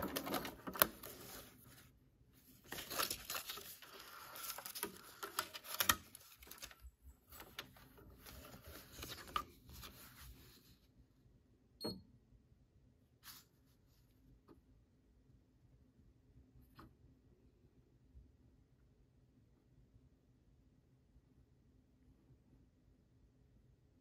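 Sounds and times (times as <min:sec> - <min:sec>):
paper rustling and crinkling: 0:00.0 - 0:10.8.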